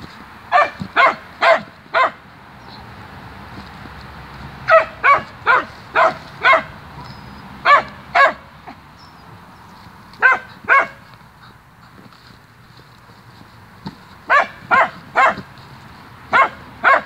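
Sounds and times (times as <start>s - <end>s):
small dog barking sharply: 0.5s - 2.2s, 4.7s - 6.7s, 7.6s - 8.4s, 10.2s - 11.0s, 14.3s - 15.4s, 16.3s - 17.0s.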